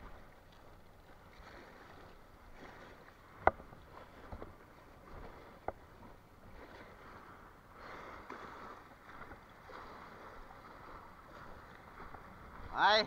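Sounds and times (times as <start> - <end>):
small waves lapping against stone: 0.0 - 13.0.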